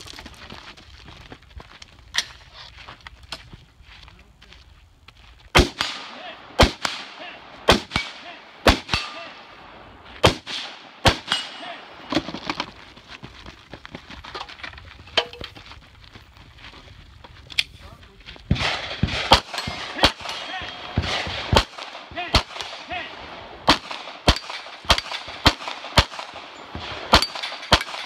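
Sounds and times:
rifle shots: 5.6 - 12.3, 18.5 - 28.0.

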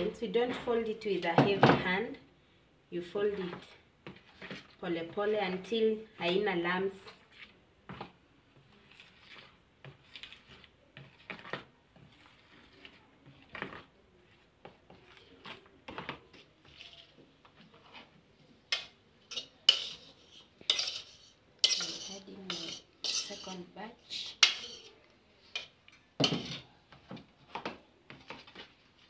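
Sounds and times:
spoon scraping plastic bowl: 3.4 - 4.8, 7.1 - 18.2, 18.8 - 26.7.

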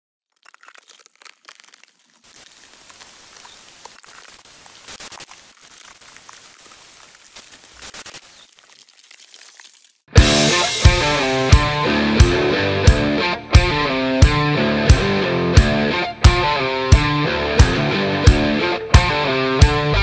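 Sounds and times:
dense static crackling: 0.4 - 9.2.

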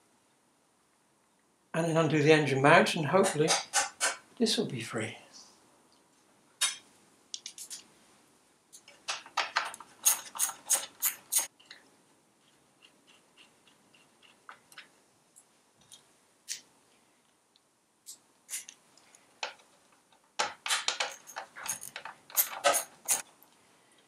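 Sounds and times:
hand tools clicking on metal: 8.8 - 11.5, 20.4 - 23.3.

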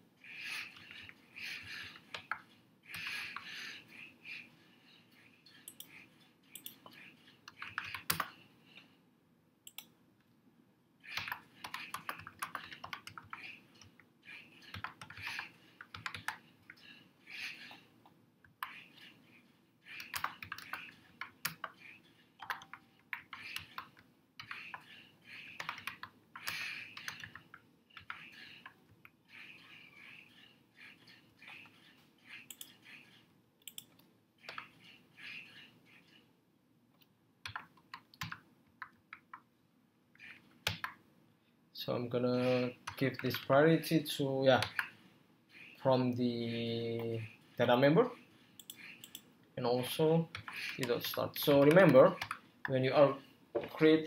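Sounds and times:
typing on keyboard: 7.5 - 8.3, 11.1 - 13.5, 14.6 - 16.4, 19.9 - 21.7, 22.4 - 28.2, 37.4 - 39.4, 50.3 - 52.4.

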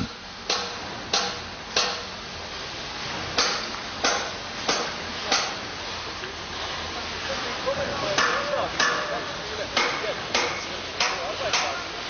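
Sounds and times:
hammer strikes: 0.0 - 2.1, 3.4 - 5.6, 8.2 - 9.2, 9.8 - 11.8
construction site noise: 0.0 - 12.0.

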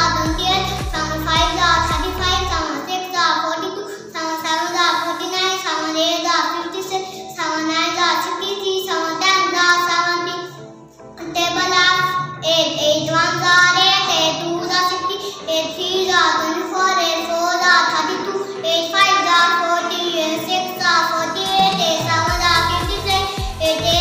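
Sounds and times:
boy chanting in sing-song voice: 0.0 - 2.6, 20.2 - 24.0.

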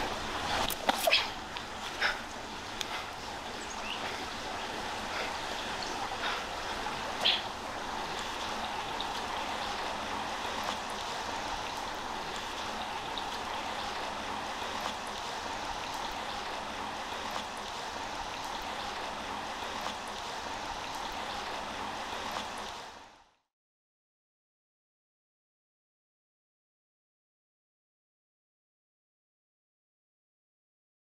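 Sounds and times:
creek water over rocks: 0.0 - 23.3.

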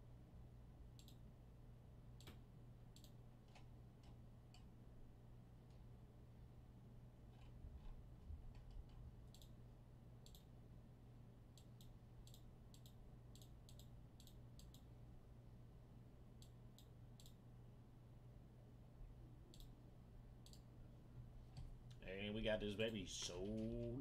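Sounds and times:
low steady hum: 0.0 - 24.0
faint sharp clicks: 1.0 - 1.2.

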